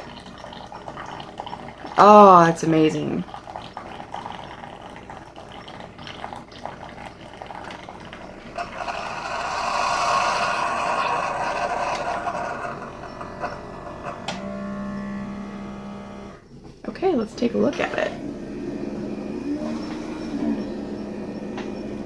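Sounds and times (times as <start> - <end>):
coffee trickling into mug: 0.0 - 15.5
coffee maker hissing: 0.0 - 22.0
low hum: 8.4 - 16.5, 17.8 - 22.0.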